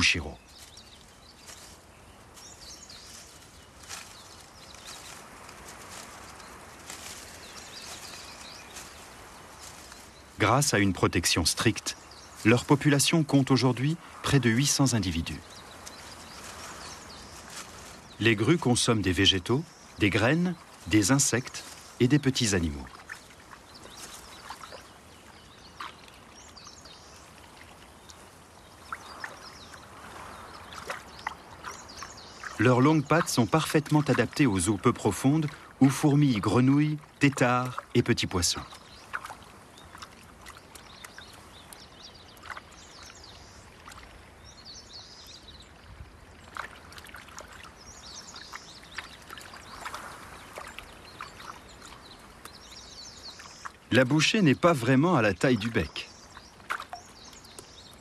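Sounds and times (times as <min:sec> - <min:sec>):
soft steady hiss: 0:00.0 - 0:58.0
soft water splashes: 0:00.0 - 0:58.0
small ticks: 0:48.4 - 0:53.8
faint high bird chirps: 0:55.3 - 0:58.0.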